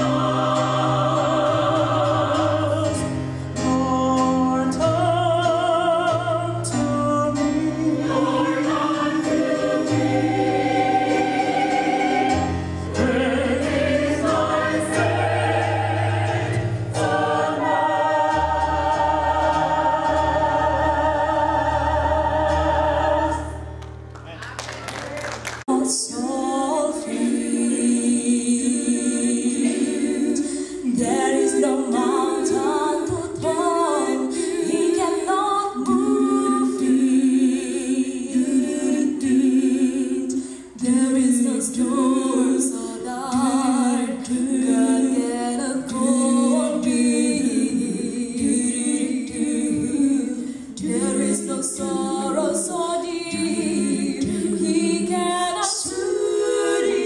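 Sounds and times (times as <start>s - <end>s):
mixed choir singing a cappella: 0.0s - 23.8s, 25.7s - 57.0s
singers breathing: 30.4s - 30.9s, 40.3s - 40.8s, 50.4s - 50.8s.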